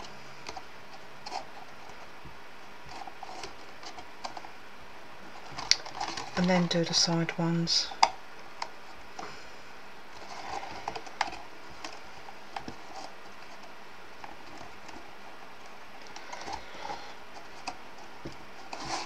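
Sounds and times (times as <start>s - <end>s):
cardstock rustling: 5.3s - 8.1s, 10.1s - 19.0s.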